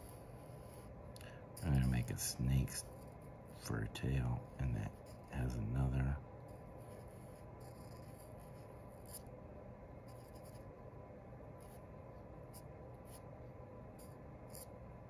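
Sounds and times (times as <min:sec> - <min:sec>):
marker scratching on paper: 0:00.0 - 0:01.0, 0:01.6 - 0:05.6, 0:06.4 - 0:09.2, 0:10.1 - 0:10.7, 0:11.6 - 0:11.8, 0:12.5 - 0:13.3, 0:14.0 - 0:14.7
low room hum: 0:00.0 - 0:15.0.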